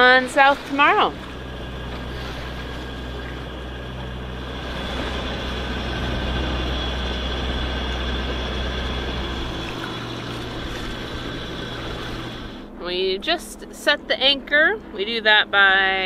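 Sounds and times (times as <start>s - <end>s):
water hissing around hull: 0.0s - 12.8s
boat engine droning: 0.0s - 16.0s
wind: 0.0s - 16.0s.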